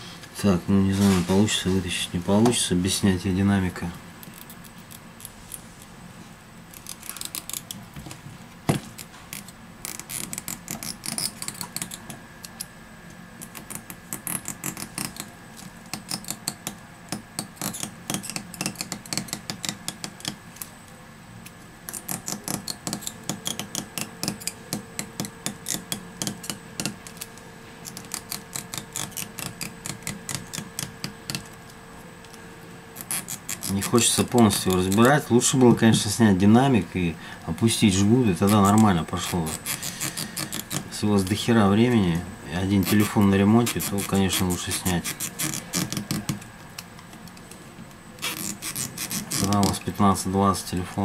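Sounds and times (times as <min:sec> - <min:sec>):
faint steady hum: 0:00.0 - 0:51.0
adhesive strip crackling: 0:06.7 - 0:07.8, 0:08.8 - 0:12.7, 0:13.4 - 0:20.8, 0:21.4 - 0:31.8, 0:33.0 - 0:35.2, 0:42.8 - 0:47.5, 0:48.2 - 0:49.9.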